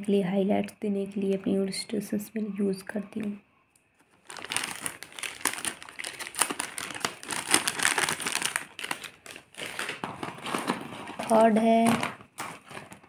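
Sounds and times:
plastic packaging crinkling: 4.0 - 13.0.

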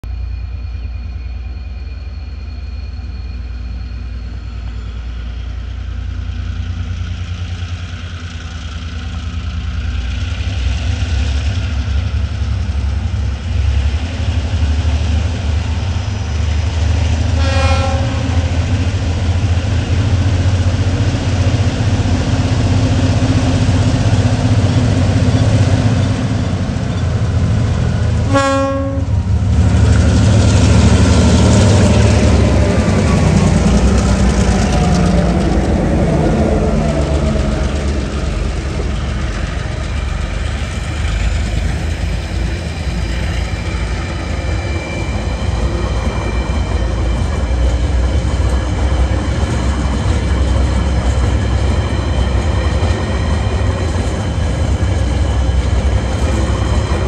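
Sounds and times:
locomotive engine rumble: 0.0 - 57.0
train horn blast: 17.3 - 18.6, 28.2 - 29.2.

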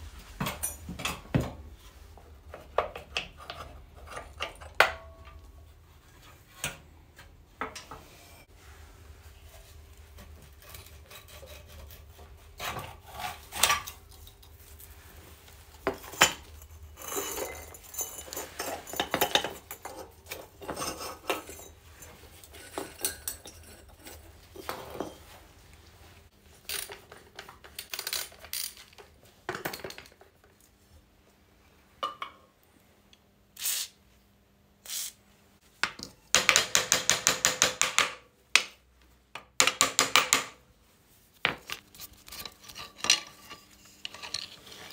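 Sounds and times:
metal parts clinking and scraping: 16.0 - 25.1, 26.6 - 29.1, 41.6 - 44.9.

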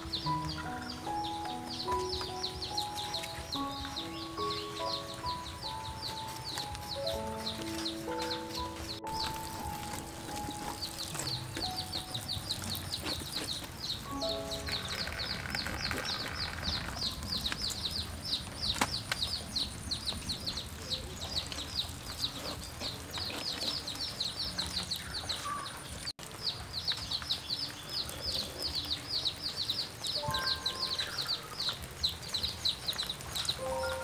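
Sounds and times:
rapid high chirping: 0.0 - 21.1, 29.6 - 34.0.

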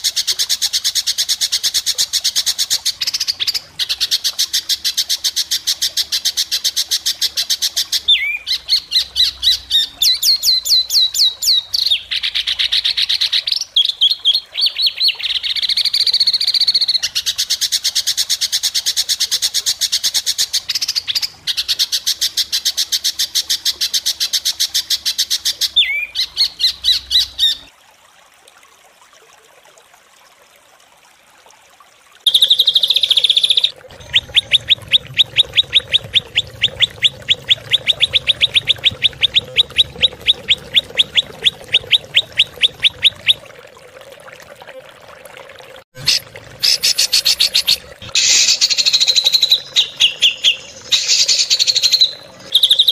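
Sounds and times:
recorded songbird song: 2.2 - 18.1, 19.9 - 27.7, 32.3 - 43.4, 46.0 - 52.9.

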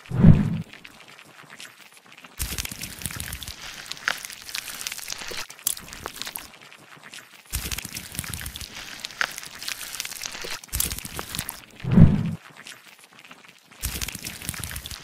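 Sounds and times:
sharp clicks and pops: 0.1 - 12.4, 13.8 - 15.0
blade scraping crusty mass: 2.4 - 6.5.

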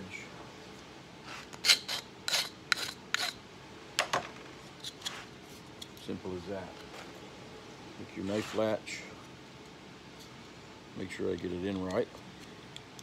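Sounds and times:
file scraping metal: 1.3 - 3.4.

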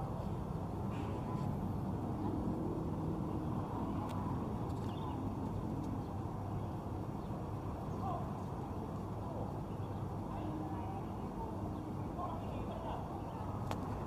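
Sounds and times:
traffic hum: 0.0 - 14.0
faint indistinct voices: 7.6 - 14.0.

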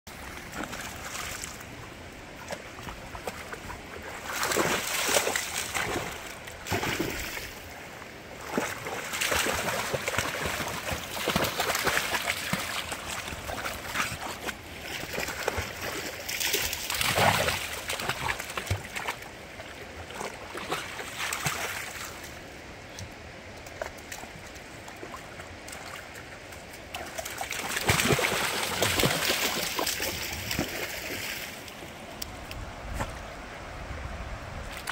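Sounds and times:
dogs splashing in water: 2.4 - 7.6, 8.3 - 22.2, 25.0 - 31.6.

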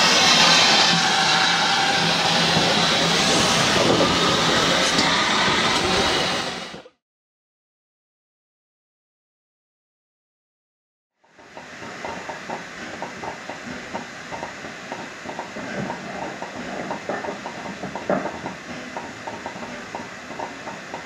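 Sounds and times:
steam hissing: 0.0 - 6.9, 11.4 - 21.0
train wheels clattering: 11.2 - 21.0.

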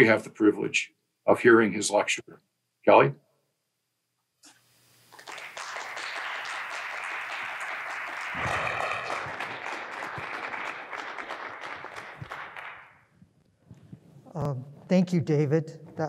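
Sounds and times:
small audience applauding: 5.1 - 13.1.

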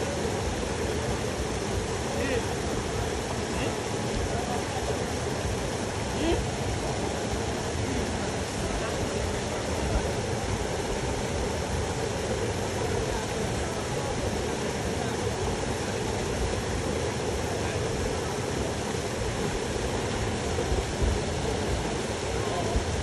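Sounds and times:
water rushing over waterfall: 0.0 - 23.0.

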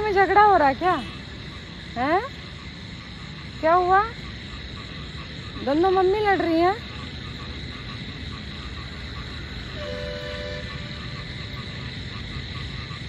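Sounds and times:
street traffic rumble: 0.0 - 13.0
distant vehicle horn: 9.8 - 11.2.

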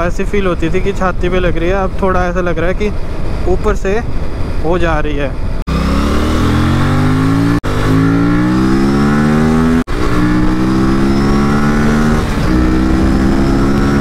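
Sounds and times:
motorcycle engine accelerating: 5.6 - 14.0.

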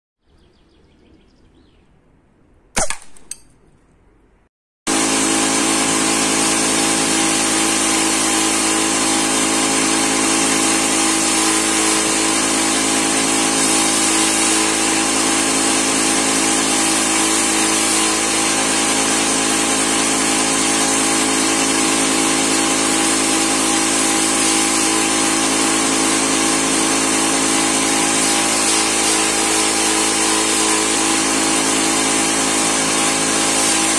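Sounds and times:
air rifle shot: 2.7 - 3.4.

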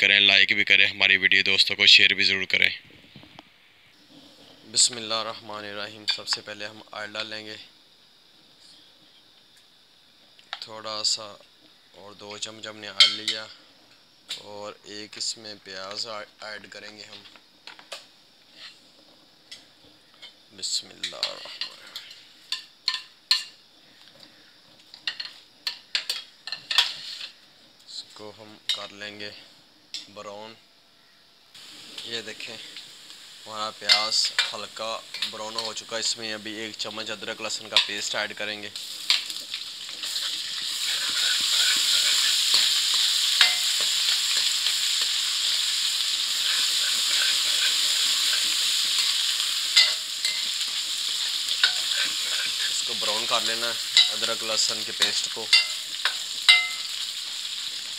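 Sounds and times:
onions sizzling in hot oil: 16.5 - 24.1, 24.8 - 27.8, 31.5 - 57.9
ladle clinking and scraping pan: 25.1 - 27.4, 42.2 - 44.5, 48.9 - 52.1, 55.1 - 56.9
spoon knocking on pan: 43.4 - 44.5, 49.8 - 50.6, 54.0 - 54.3, 55.1 - 56.9.

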